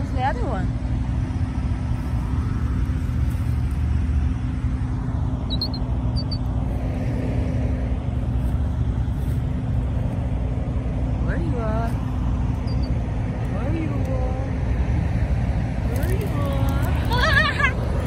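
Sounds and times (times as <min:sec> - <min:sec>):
low hum: 0:00.0 - 0:18.0
low rumble: 0:00.0 - 0:18.0
high chirps: 0:05.5 - 0:06.5.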